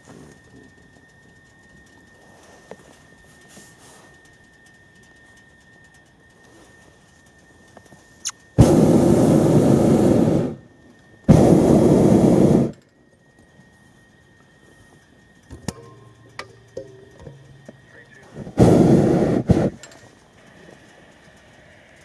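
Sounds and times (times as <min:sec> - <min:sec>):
propane burner blasting: 0:00.0 - 0:22.0.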